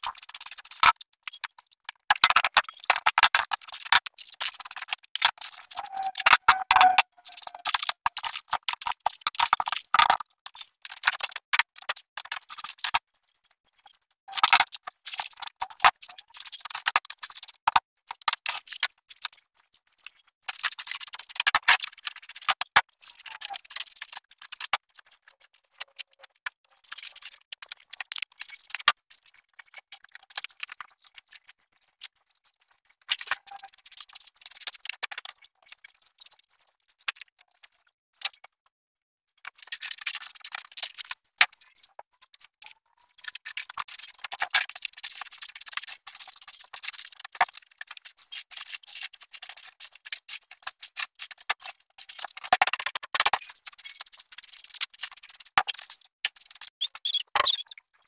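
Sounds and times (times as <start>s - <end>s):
scattered clicks and knocks: 0.0s - 19.4s.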